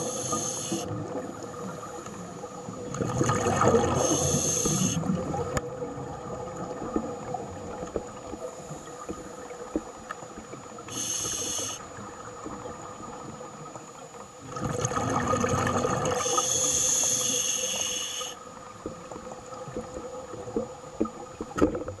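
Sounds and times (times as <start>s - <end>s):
regulator inhalation hiss: 0.0s - 0.9s, 4.0s - 5.1s, 10.9s - 11.9s, 16.2s - 18.4s.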